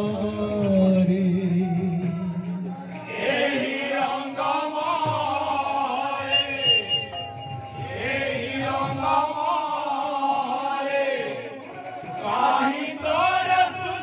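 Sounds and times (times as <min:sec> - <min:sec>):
musical accompaniment: 0:01.2 - 0:09.0
group chanting a devotional refrain: 0:01.9 - 0:06.4, 0:07.7 - 0:14.0.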